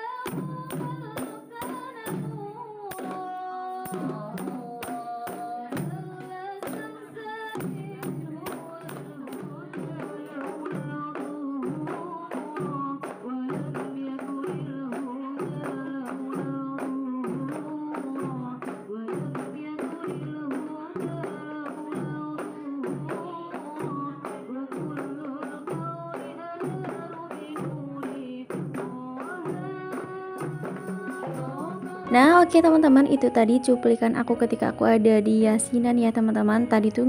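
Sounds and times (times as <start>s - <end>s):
frame drums beaten by hand: 0.0s - 34.7s
group singing: 29.5s - 32.1s.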